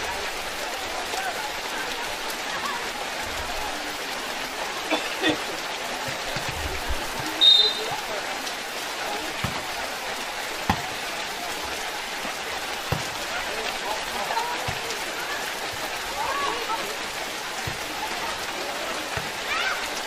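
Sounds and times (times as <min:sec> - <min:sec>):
heavy rain on pavement: 0:00.0 - 0:20.0
shrill whistle-like blast: 0:07.4 - 0:07.9.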